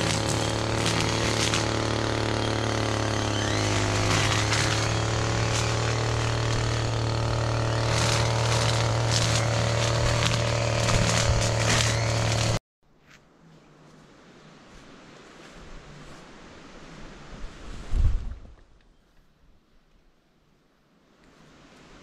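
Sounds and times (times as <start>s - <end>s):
small engine running: 0.0s - 12.6s
brush rustling: 0.0s - 18.0s.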